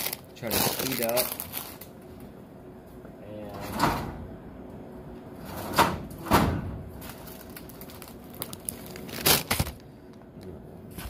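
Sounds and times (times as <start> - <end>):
packaging rustling: 0.0 - 1.9, 7.0 - 9.9.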